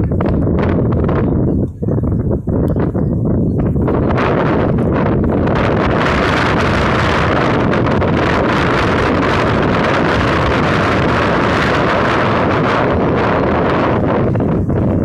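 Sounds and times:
wind blowing across microphone: 0.0s - 15.0s.

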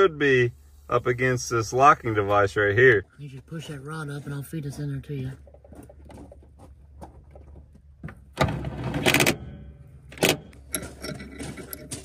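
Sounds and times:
metal tools clattering: 10.6s - 12.0s.

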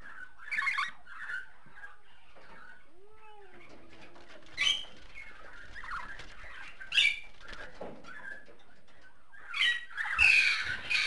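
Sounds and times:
budgerigar chirping and chattering: 0.1s - 2.0s.

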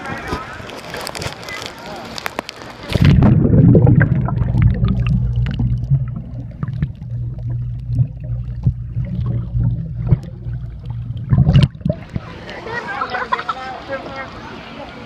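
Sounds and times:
underwater low hum: 0.6s - 13.2s
bubbly clicks and knocks: 0.8s - 12.3s.

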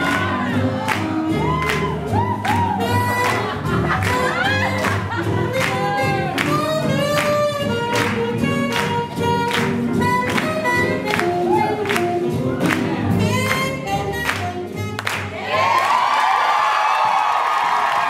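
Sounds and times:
swing music with singing: 0.0s - 15.8s.

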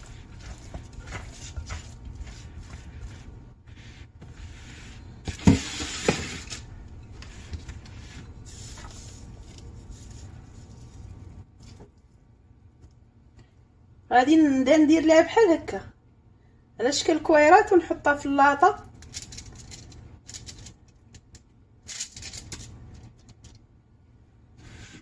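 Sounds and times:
hands squelching bread dough: 0.0s - 12.9s.

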